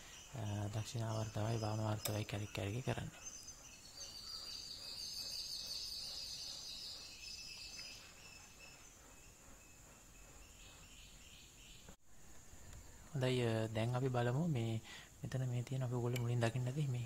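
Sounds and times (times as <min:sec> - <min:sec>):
high-pitched chirping trill: 0:00.2 - 0:11.2.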